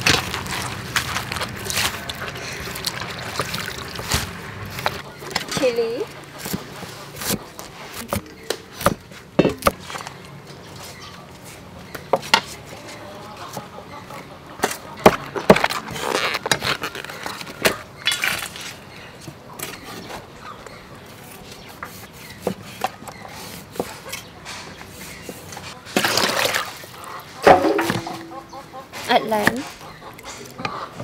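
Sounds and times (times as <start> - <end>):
vegetables rustling: 0.0 - 11.6
cleaver chopping on wood: 27.5 - 28.4.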